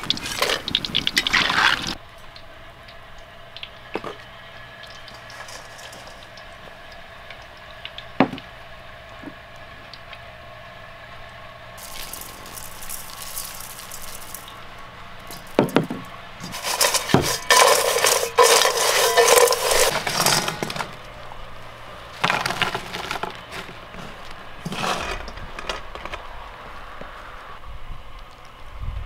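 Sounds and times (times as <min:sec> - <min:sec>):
fried potato strips crackling in bowl: 0:00.0 - 0:02.0, 0:04.8 - 0:08.0, 0:11.8 - 0:21.1, 0:22.1 - 0:26.3.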